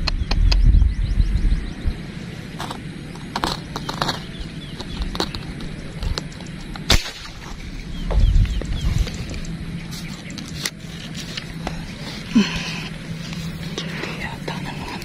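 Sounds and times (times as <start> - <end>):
air rifle shot: 6.9 - 7.5.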